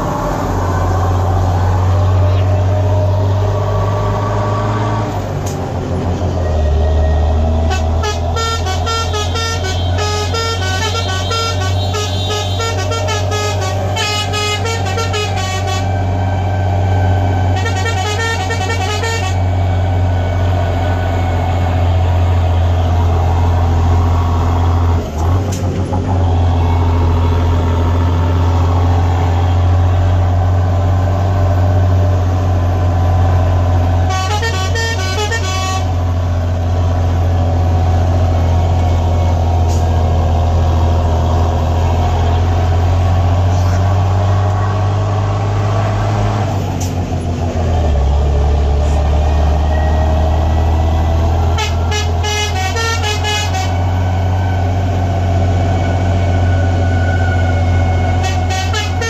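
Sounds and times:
truck engine drone: 0.0s - 59.0s
musical truck horn: 7.7s - 16.1s, 17.4s - 19.7s, 33.9s - 36.2s, 51.4s - 54.0s, 55.6s - 59.0s.

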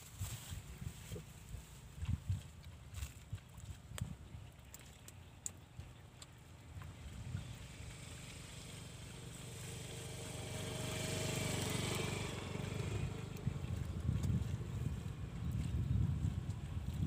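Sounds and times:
motor engine passing by: 6.7s - 15.8s.

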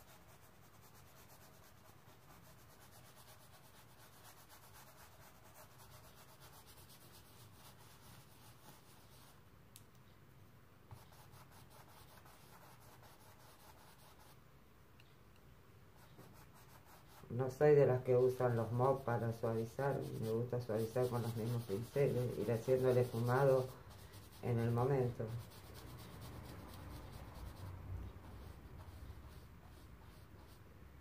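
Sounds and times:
paintbrush rubbing on canvas: 0.0s - 9.4s, 18.2s - 30.6s.

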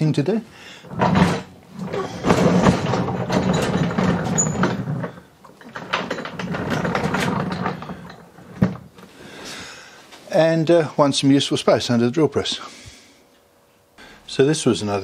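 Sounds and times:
cabinet castors rolling on concrete: 0.8s - 9.1s.

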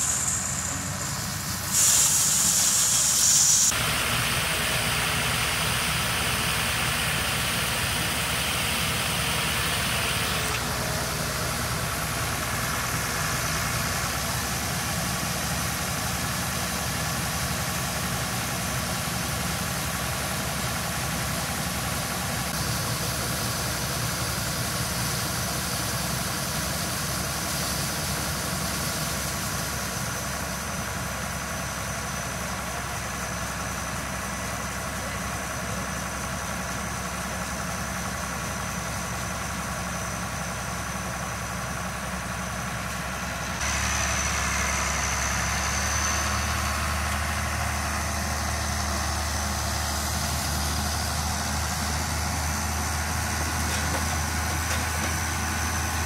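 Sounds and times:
combine and tractor engines running: 0.0s - 56.0s
auger moving corn: 50.1s - 56.0s.

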